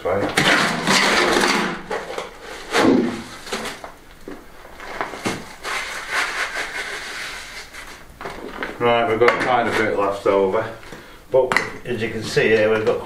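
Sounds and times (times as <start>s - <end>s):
shovel scraping wet mix: 4.7s - 8.7s.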